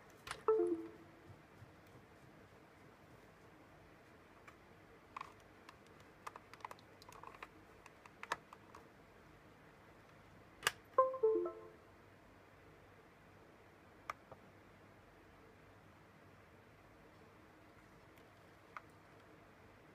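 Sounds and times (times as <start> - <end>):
computer notification chime: 0.5 - 1.1, 11.0 - 11.8
small clicks and taps: 4.4 - 8.9.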